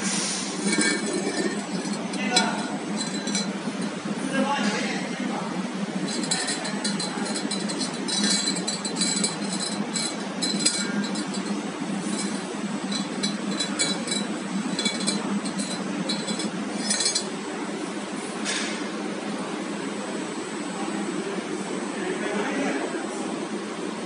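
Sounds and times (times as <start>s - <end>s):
machinery humming: 0.0s - 18.4s.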